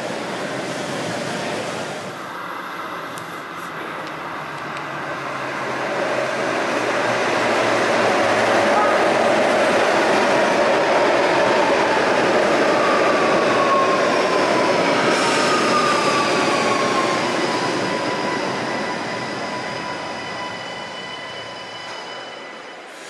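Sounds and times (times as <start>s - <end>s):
steel wheels rumbling on rail: 3.4s - 23.0s.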